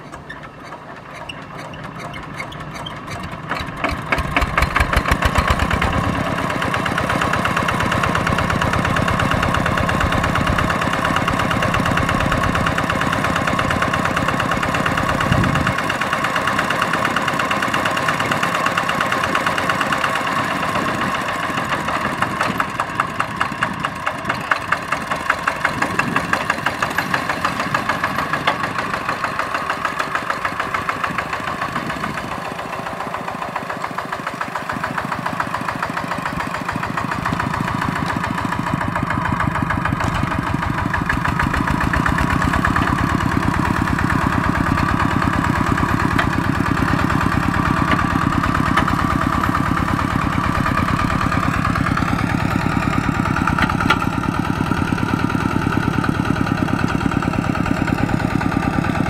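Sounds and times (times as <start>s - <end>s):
diesel engine chugging: 0.0s - 59.0s.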